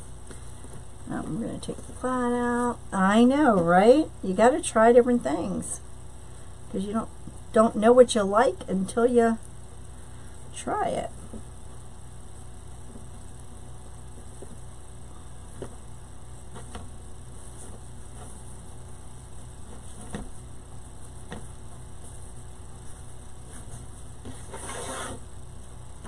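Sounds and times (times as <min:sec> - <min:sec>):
low electrical hum: 0:00.0 - 0:26.0
faint taps and rustles: 0:15.5 - 0:18.6, 0:19.6 - 0:24.8.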